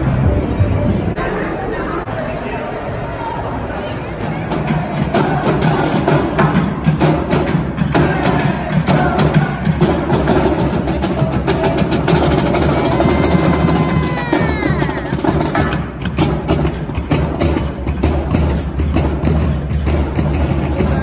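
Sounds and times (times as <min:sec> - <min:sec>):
crowd chatter: 0:00.0 - 0:21.0
marching drumline: 0:04.2 - 0:21.0.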